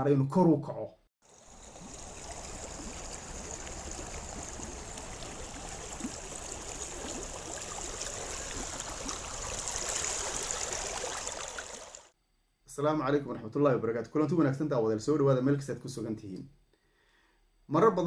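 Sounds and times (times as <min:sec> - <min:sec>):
running water rushing: 0:01.2 - 0:12.1.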